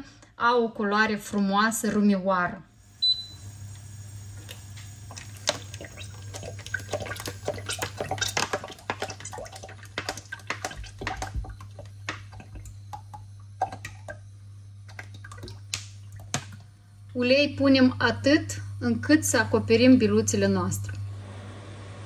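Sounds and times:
dough balls frying in hot oil: 2.8s - 19.4s
oil crackling and popping: 3.5s - 16.6s.

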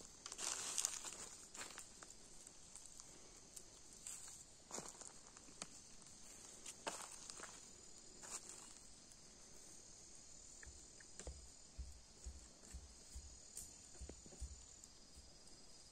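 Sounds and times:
insects chirring: 0.0s - 15.9s
soft low thumps: 10.6s - 15.4s.

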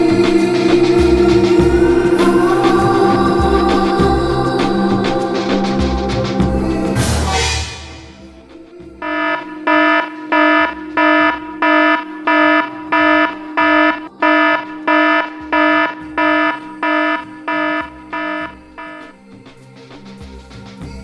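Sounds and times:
electronic alarm beeping: 9.0s - 19.1s.

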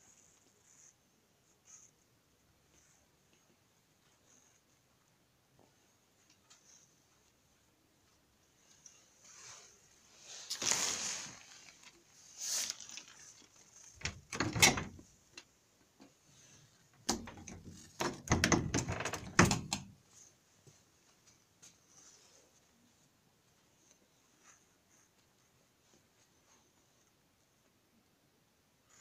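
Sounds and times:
door knocking and rattling: 14.0s - 15.0s, 17.1s - 19.9s
door latch clicks: 14.0s - 15.0s.

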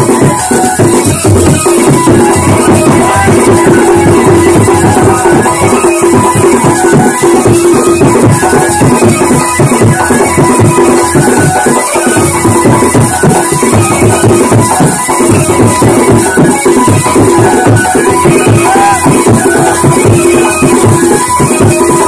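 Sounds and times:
folk dance music over loudspeaker: 0.0s - 22.0s.

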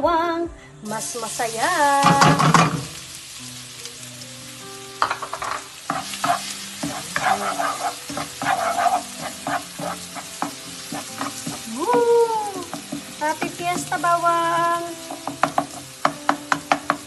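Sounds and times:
garlic sizzling in oil: 0.9s - 17.0s
spatula scraping a wok: 5.0s - 12.0s, 15.0s - 17.0s.

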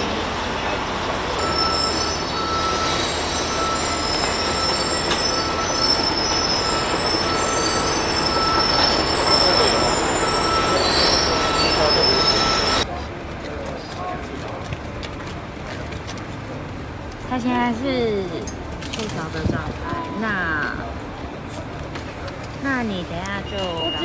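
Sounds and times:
loud machinery noise: 0.0s - 24.0s
high metallic squealing: 1.3s - 12.9s.

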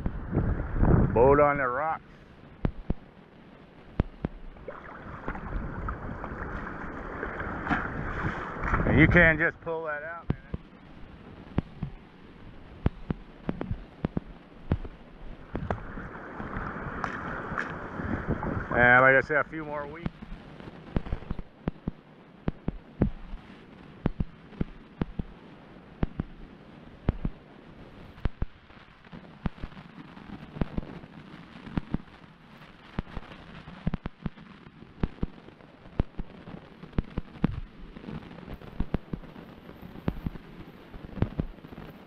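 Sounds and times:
low muffled hiss: 0.0s - 42.0s.

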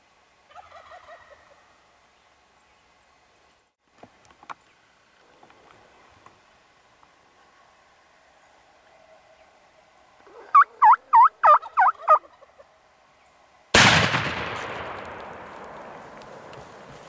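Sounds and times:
turkey calls: 0.5s - 2.0s, 7.3s - 12.9s
shotgun blast echoing: 13.8s - 16.0s.

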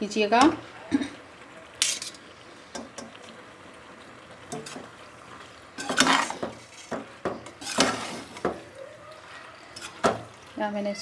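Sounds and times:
metal spoon scraping a pot: 5.8s - 8.4s, 9.7s - 10.1s.

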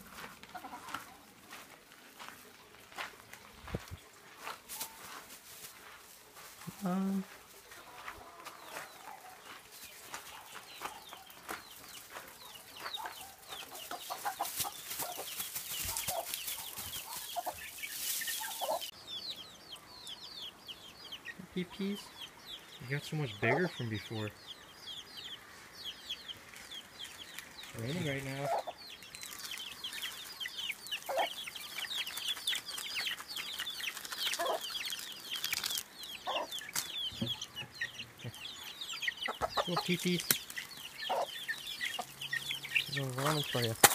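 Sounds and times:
hen clucking: 0.0s - 1.3s, 12.4s - 18.9s, 21.1s - 25.6s, 27.7s - 35.1s, 35.7s - 43.9s
chicks peeping: 0.0s - 43.9s.

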